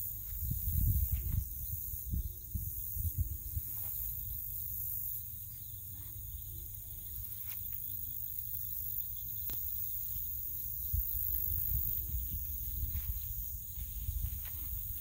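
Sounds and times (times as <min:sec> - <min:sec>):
wind rumbling on microphone: 0:00.0 - 0:04.4, 0:10.7 - 0:15.0
insects chirring: 0:00.0 - 0:15.0.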